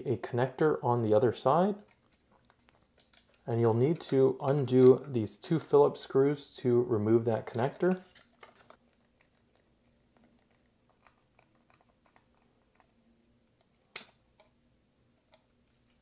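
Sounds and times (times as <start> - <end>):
small electronic parts handled: 7.5 - 13.0.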